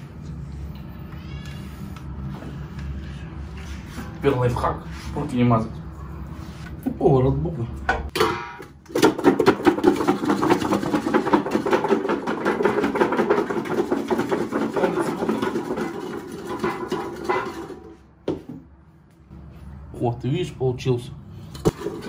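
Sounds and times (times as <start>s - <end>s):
potatoes rattling in metal bowl: 9.0s - 18.0s, 21.7s - 22.0s.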